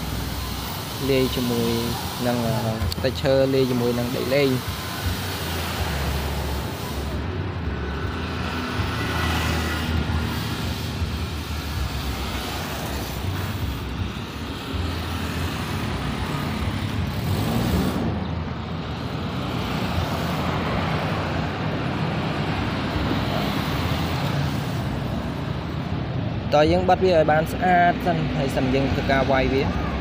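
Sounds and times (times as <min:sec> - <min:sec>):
hiss: 0:00.0 - 0:07.2, 0:09.6 - 0:13.8.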